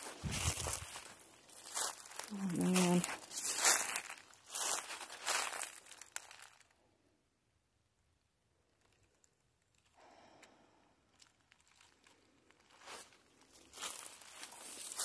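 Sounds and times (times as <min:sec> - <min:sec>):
footsteps crunching in dry leaves: 0:00.0 - 0:06.7, 0:11.4 - 0:15.0
faint leaf rustling: 0:00.0 - 0:06.8, 0:08.8 - 0:15.0.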